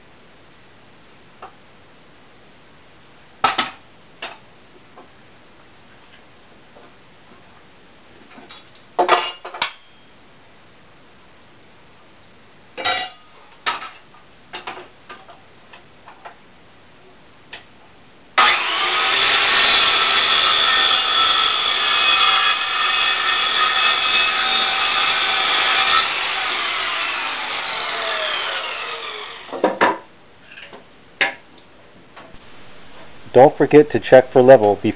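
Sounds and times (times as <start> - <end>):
saw blade winding down whine: 18.4 - 29.6
circular saw cutting wood: 18.4 - 29.8.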